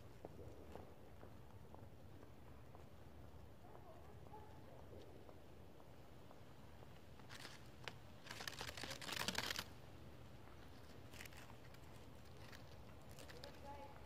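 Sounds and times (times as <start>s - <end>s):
dry leaves crackling: 7.2s - 9.8s, 10.6s - 14.0s.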